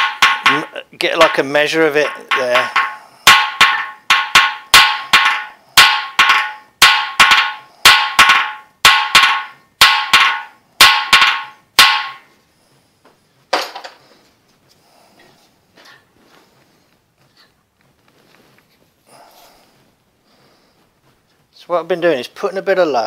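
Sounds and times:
hammer striking metal: 0.0 - 12.4.

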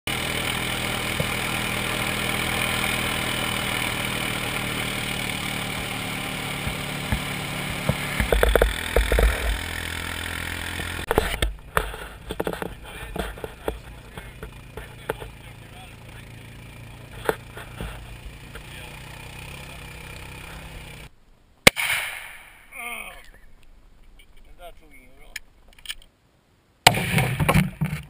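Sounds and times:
quad bike engine running: 0.1 - 21.1
tyres on gravel: 0.1 - 26.1, 26.9 - 28.0.

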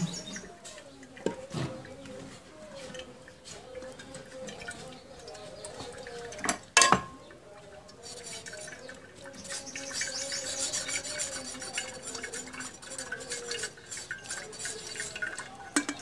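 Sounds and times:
metal skimmer scraping steel sieve: 7.8 - 16.0.

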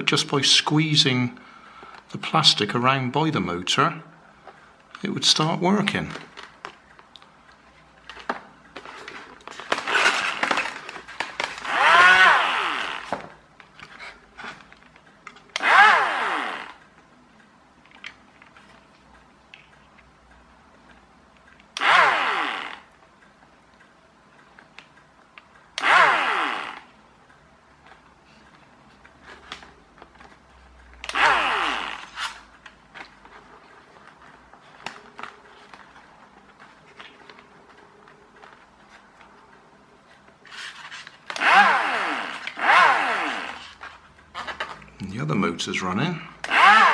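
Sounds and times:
small electric motor whirring: 11.6 - 13.1, 41.3 - 43.7, 46.5 - 46.9.

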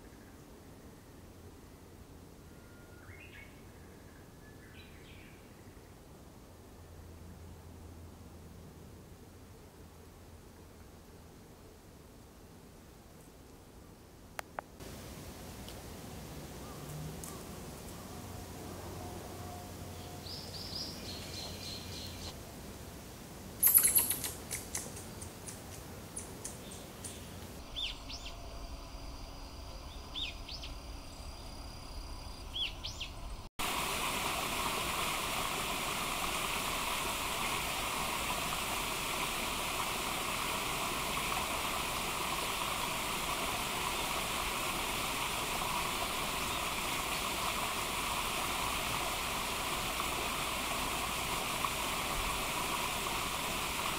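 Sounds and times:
birds chirping: 19.9 - 22.3, 23.6 - 25.6, 26.2 - 33.5.

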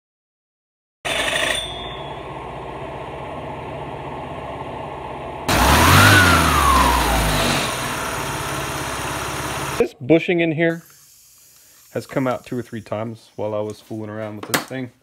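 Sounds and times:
cooling fan spinning: 1.4 - 9.8
scooter engine idling and revving: 2.2 - 9.8.

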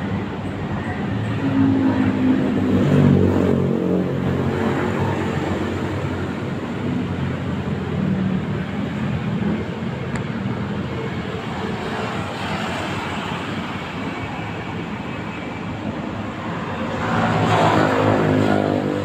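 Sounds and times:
street traffic: 0.0 - 19.0
vehicle passing close: 16.4 - 19.0.

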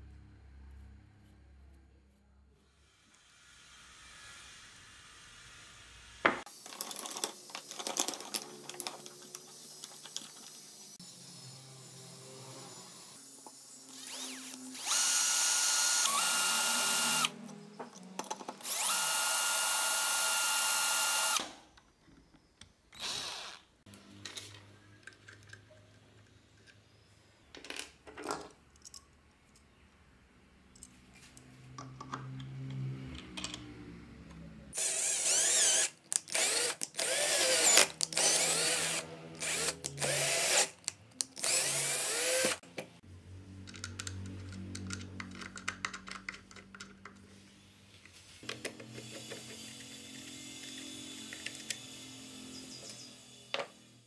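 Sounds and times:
metal parts clicking and scraping: 6.5 - 10.8, 27.5 - 29.8, 43.6 - 47.3
electric drill whining: 11.0 - 17.4, 18.6 - 21.6, 23.0 - 23.7, 34.8 - 40.7, 41.4 - 42.6, 48.8 - 54.0.

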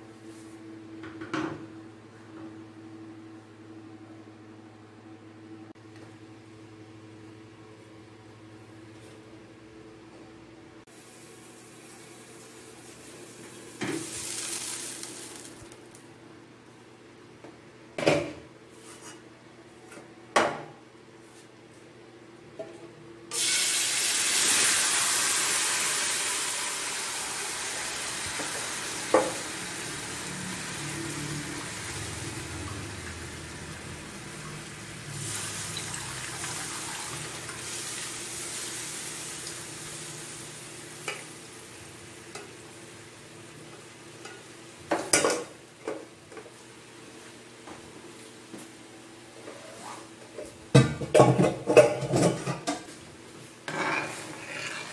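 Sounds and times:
drippings sizzling in hot wok: 10.9 - 16.0, 23.3 - 44.6.

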